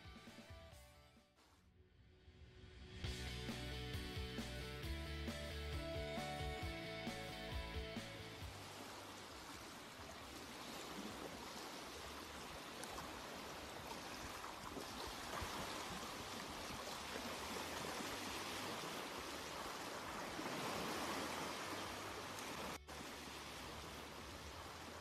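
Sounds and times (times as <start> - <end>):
flowing water rushing: 8.3 - 25.0.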